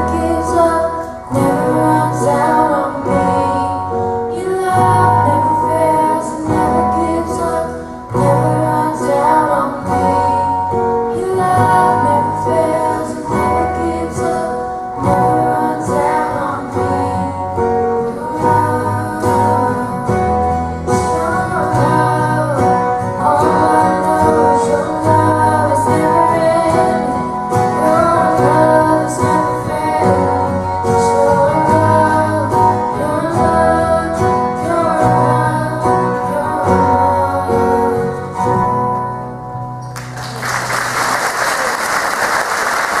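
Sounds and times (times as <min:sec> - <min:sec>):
voices singing: 0:00.0 - 0:38.4
strummed acoustic guitars: 0:00.0 - 0:41.0
applause: 0:40.0 - 0:43.0.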